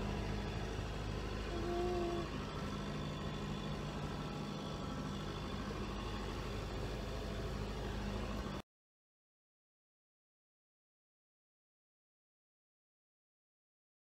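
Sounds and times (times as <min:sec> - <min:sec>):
boat diesel engine running: 0:00.0 - 0:08.6.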